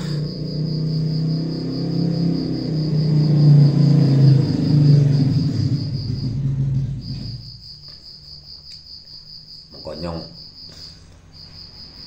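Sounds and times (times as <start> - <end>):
cricket chirping: 0.0 - 12.0.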